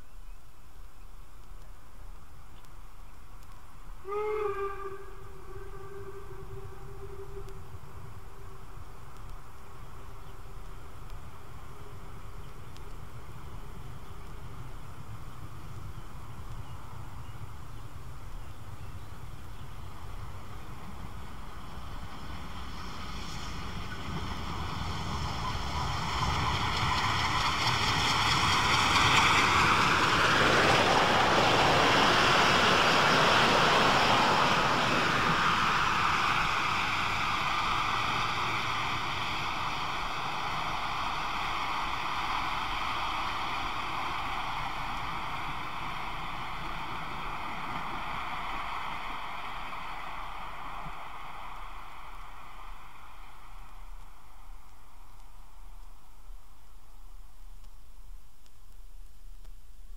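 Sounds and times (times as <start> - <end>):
train wheels rushing on rails: 3.4 - 55.2
steam locomotive whistle: 4.0 - 8.6.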